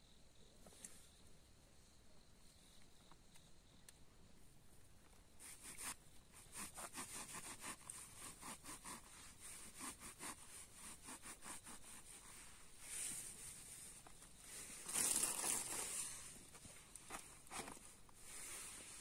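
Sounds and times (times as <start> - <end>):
insects chirring: 0.0 - 8.3, 11.6 - 19.0
footsteps crunching through dry leaves: 14.6 - 16.3.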